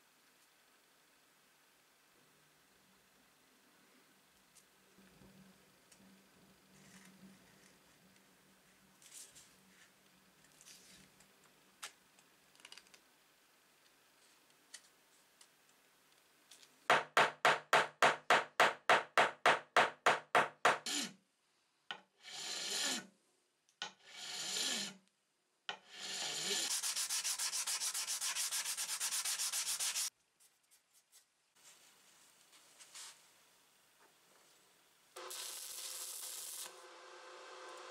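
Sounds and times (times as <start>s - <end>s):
sandpaper rubbing on wood: 26.0s - 30.1s.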